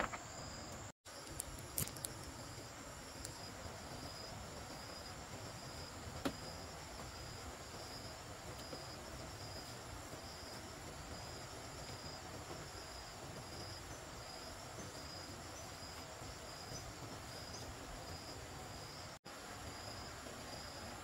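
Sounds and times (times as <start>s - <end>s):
insects chirping: 0.0s - 21.0s.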